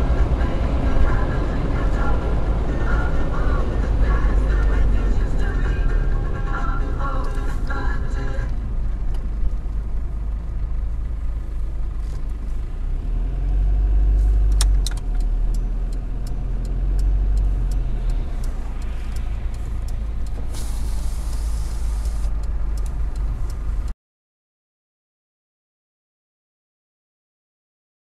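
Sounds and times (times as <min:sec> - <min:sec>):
engine and road rumble: 0:00.0 - 0:24.0
short hiss: 0:20.4 - 0:22.3.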